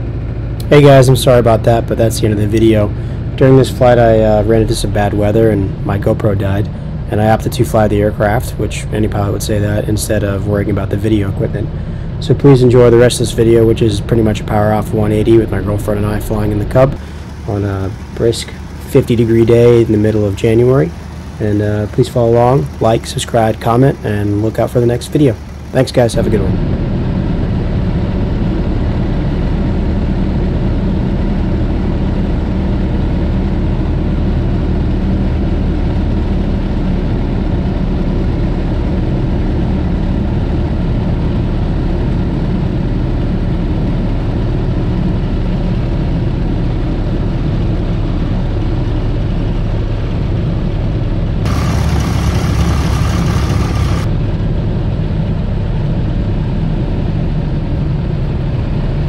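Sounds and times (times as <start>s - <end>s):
light aircraft engine and propeller: 0.0s - 59.0s
wind rush: 51.5s - 54.3s.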